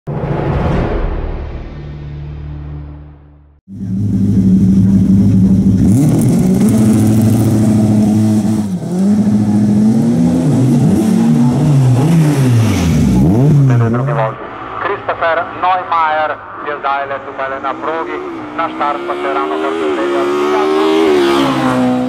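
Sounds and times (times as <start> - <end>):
race car engine at full throttle: 3.7 - 22.0.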